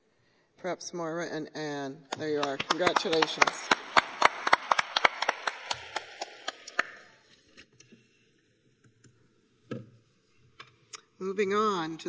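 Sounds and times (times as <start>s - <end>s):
sharp hand claps close by: 2.1s - 7.1s
audience applause: 2.2s - 7.1s.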